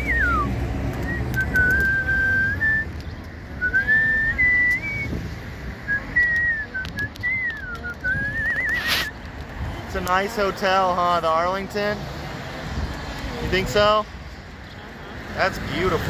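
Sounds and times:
person whistling: 0.0s - 3.0s, 3.6s - 5.2s, 5.9s - 9.1s.

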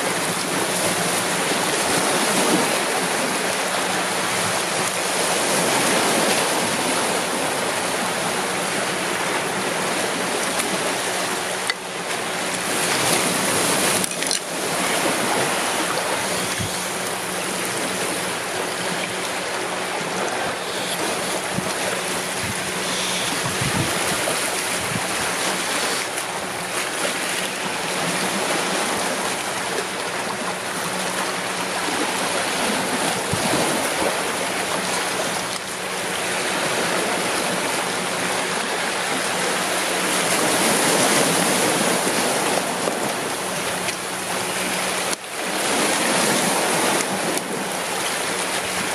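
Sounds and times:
waves washing over rocks: 0.0s - 48.9s.

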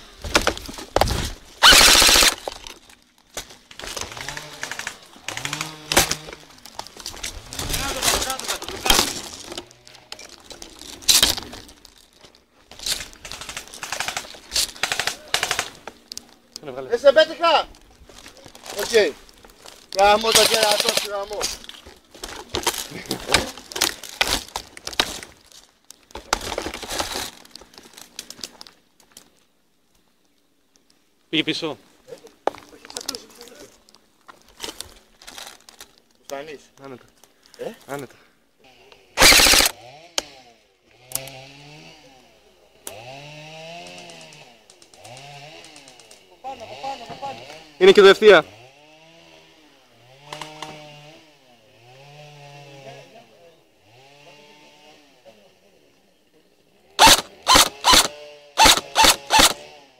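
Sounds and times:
leaves and twigs rustling: 0.0s - 38.0s
twigs snapping: 0.2s - 16.7s, 17.7s - 29.5s, 50.2s - 50.8s
airsoft gun full-auto burst: 1.6s - 2.5s, 13.2s - 15.8s, 39.2s - 39.8s, 57.0s - 59.6s.

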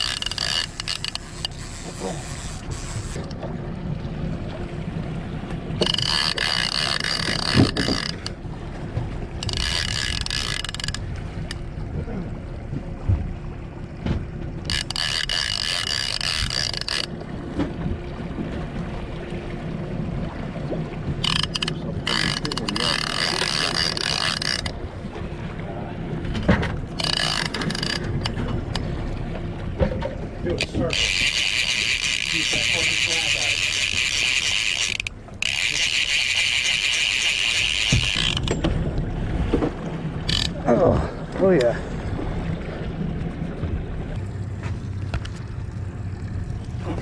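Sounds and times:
fishing reel clicker ratcheting: 0.0s - 3.4s, 5.8s - 8.4s, 9.4s - 11.6s, 14.6s - 17.1s, 21.2s - 24.8s, 27.0s - 28.8s, 30.6s - 38.6s, 40.3s - 40.6s
outboard motor humming: 0.0s - 47.0s.

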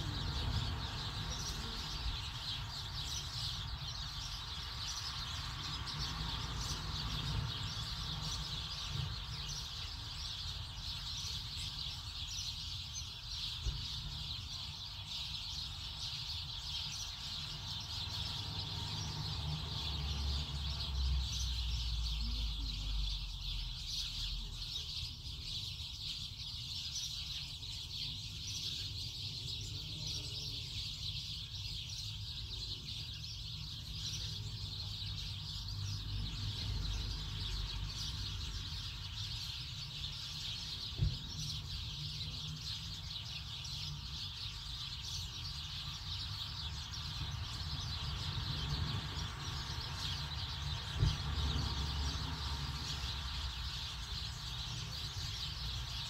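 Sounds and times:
birds chirping: 0.0s - 56.0s.

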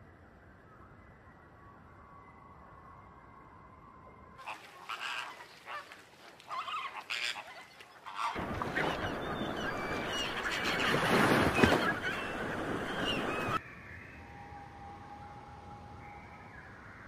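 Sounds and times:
flamingos honking: 4.4s - 13.6s.

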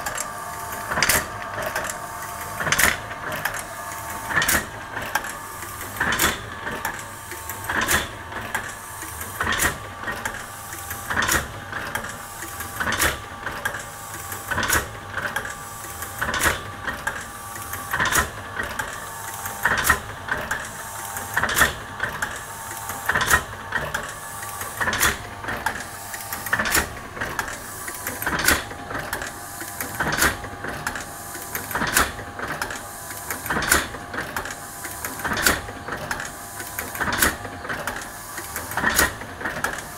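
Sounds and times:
electric motor hum: 0.0s - 11.6s.

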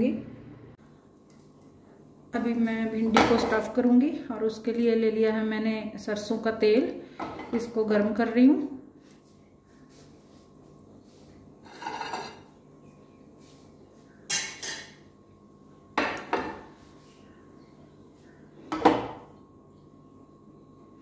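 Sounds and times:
plate clinking: 11.7s - 12.5s.

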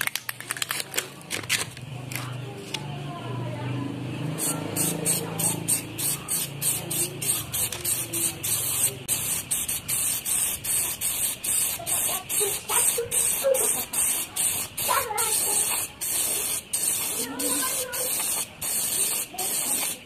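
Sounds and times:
aerosol spray can hissing: 4.4s - 20.0s.

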